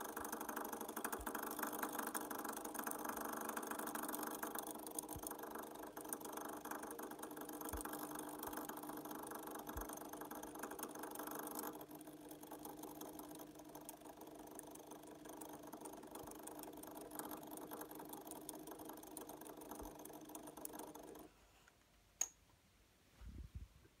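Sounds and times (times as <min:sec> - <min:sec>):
model locomotive motor whirring: 0:00.0 - 0:21.3
sharp click: 0:21.7 - 0:22.4.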